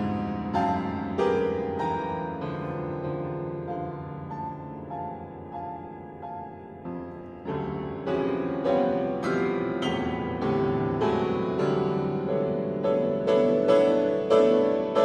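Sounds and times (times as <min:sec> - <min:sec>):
grand piano chords: 0:00.0 - 0:15.0.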